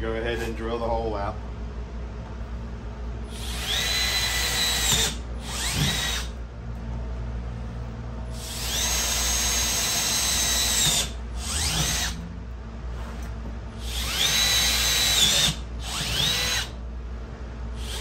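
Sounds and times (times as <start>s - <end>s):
power drill whining: 3.3s - 6.4s, 8.3s - 12.2s, 13.8s - 16.8s, 17.8s - 18.0s.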